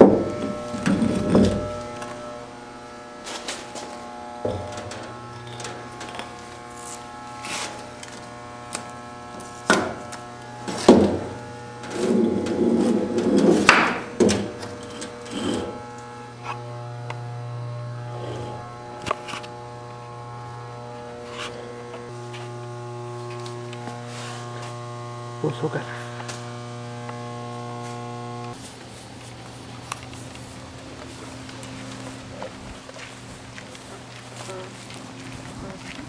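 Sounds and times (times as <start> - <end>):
steady low hum: 0.0 - 36.0
footsteps: 3.1 - 16.6, 21.0 - 24.9, 25.9 - 36.0.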